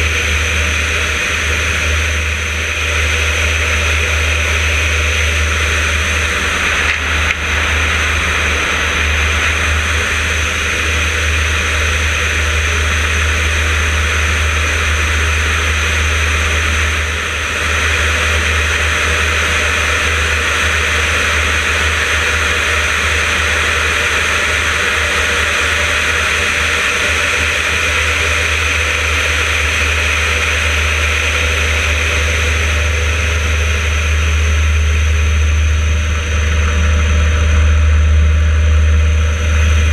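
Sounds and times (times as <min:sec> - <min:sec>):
rushing airflow: 0:00.0 - 0:14.6
propeller engine droning: 0:00.0 - 0:39.9.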